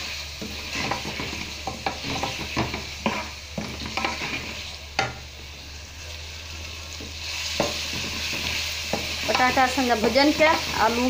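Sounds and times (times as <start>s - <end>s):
potatoes sizzling in oil: 0.0s - 11.0s
wooden spoon scraping a pot: 0.4s - 5.2s, 7.0s - 11.0s.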